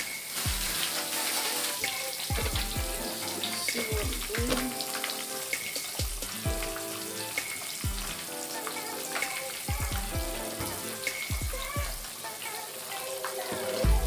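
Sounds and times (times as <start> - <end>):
fish sizzling in hot oil: 0.0 - 14.0
music with thumping beat: 0.5 - 0.9, 1.8 - 3.1, 3.7 - 4.8, 5.5 - 6.8, 7.4 - 8.2, 9.2 - 10.5, 11.1 - 12.1.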